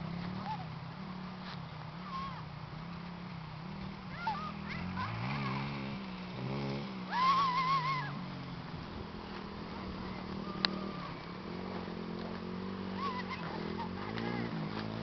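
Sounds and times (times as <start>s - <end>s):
wavering high-pitched call: 7.1s - 8.3s.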